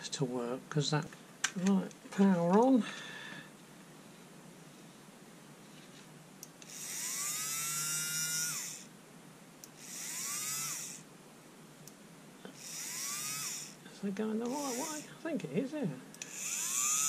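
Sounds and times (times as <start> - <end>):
cordless screwdriver motor whine: 6.6 - 8.9, 9.8 - 11.0, 12.6 - 13.8, 14.5 - 15.1, 16.2 - 17.0.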